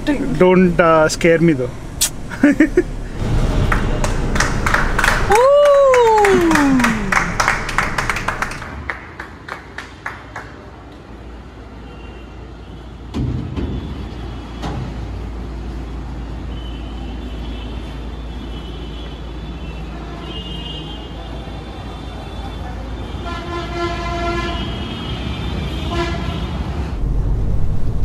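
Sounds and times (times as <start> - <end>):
car engine starting and idling: 0.0 - 5.5
hand claps: 3.7 - 10.6.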